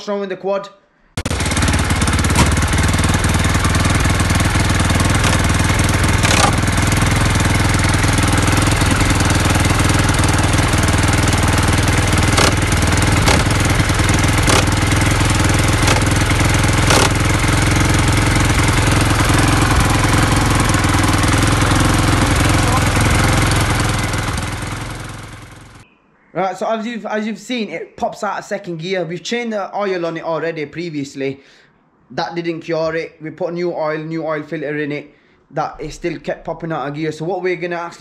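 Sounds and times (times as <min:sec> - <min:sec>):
quad bike engine running: 0:01.2 - 0:25.8
sharp clicks: 0:06.2 - 0:06.6, 0:12.4 - 0:12.6, 0:15.8 - 0:16.1, 0:16.8 - 0:17.2.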